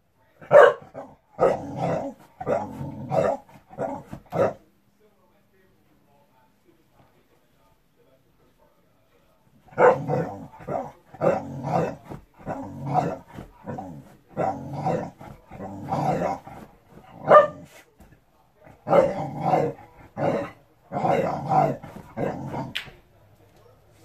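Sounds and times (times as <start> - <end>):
dog barking and growling: 0.4 - 4.6, 9.6 - 17.9, 18.6 - 22.8.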